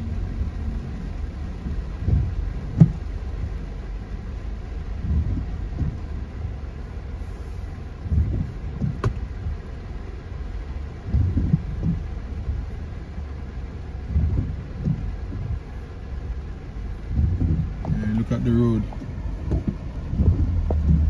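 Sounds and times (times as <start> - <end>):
low thuds: 0.0 - 10.2, 10.8 - 21.0
car and rain low rumble: 0.0 - 21.0.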